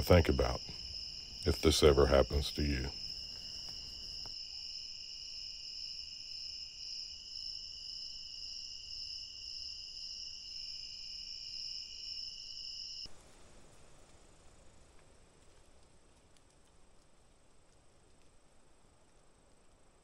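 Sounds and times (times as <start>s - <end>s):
insects trilling high-pitched: 0.0s - 13.1s
lower insect trill: 0.0s - 13.1s.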